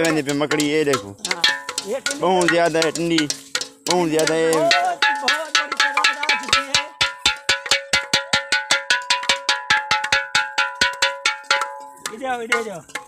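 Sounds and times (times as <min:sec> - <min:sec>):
metal pots and pans beaten: 0:00.0 - 0:13.0.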